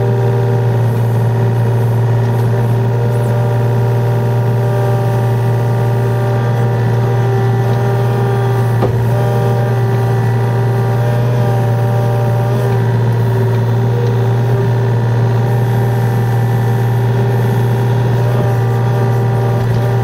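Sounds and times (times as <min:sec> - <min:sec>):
excavator diesel engine running: 0:00.0 - 0:20.0
short knock: 0:08.8 - 0:09.1.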